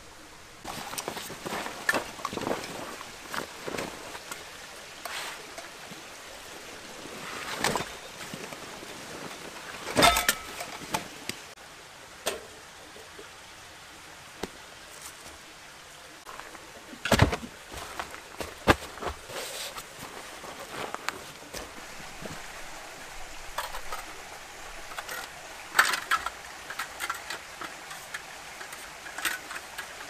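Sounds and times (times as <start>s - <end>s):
outdoor background hiss: 0.0s - 30.0s
rustling of gear: 0.7s - 11.2s, 16.3s - 22.5s
knocks and clunks: 17.0s - 19.2s.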